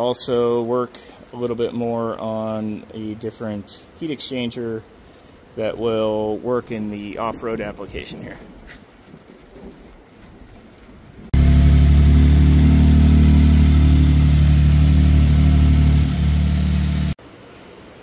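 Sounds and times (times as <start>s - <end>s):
engine idling: 11.4s - 17.2s.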